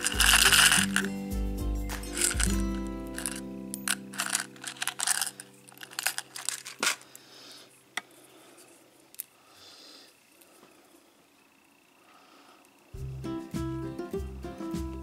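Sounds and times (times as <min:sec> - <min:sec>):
soft rustling: 0:01.9 - 0:07.3
plastic holder clicking and rattling: 0:03.2 - 0:07.0.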